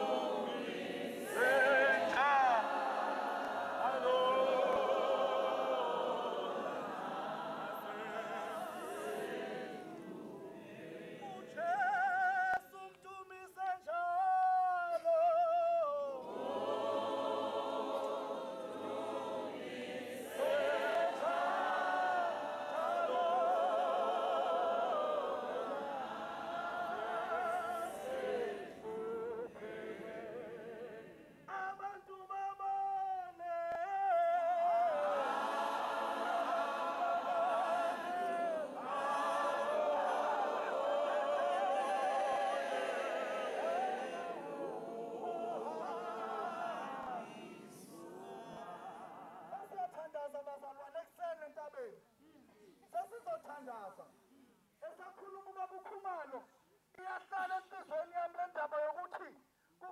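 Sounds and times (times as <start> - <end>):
women's choir singing a hymn: 0.0 - 12.6, 15.9 - 32.0, 33.4 - 49.8.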